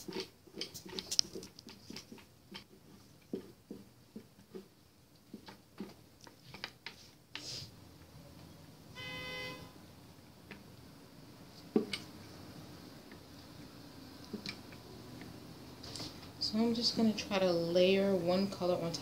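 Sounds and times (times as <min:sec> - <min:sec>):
short horn-like tone: 0:08.9 - 0:09.8.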